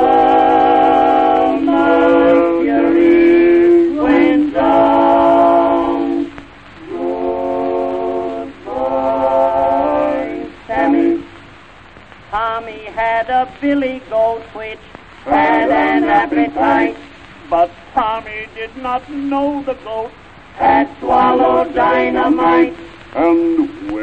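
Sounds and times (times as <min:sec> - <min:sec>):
voices singing long notes: 0:00.0 - 0:24.0.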